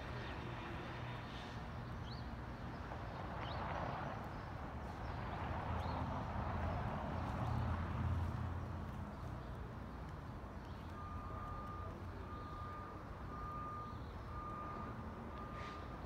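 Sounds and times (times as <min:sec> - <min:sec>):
reversing alarm beeping: 0:11.0 - 0:16.0.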